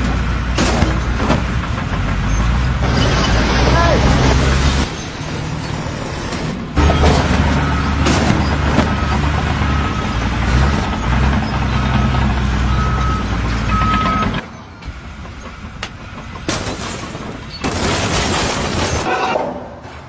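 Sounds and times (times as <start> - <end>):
truck engine running: 0.0 - 19.1
reversing alarm beeping: 11.8 - 14.4.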